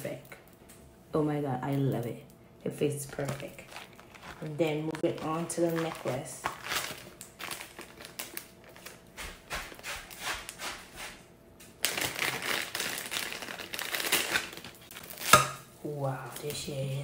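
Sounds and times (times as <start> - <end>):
plastic bag crinkling: 3.1 - 10.6, 11.8 - 15.4.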